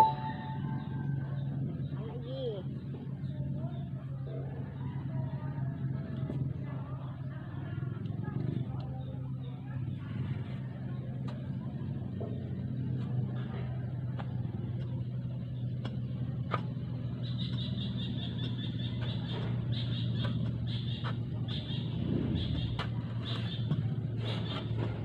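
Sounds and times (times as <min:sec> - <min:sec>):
high pulsing chirring: 0:00.0 - 0:01.2
low engine hum: 0:00.0 - 0:25.0
shovel scraping sandy ground: 0:22.6 - 0:25.0.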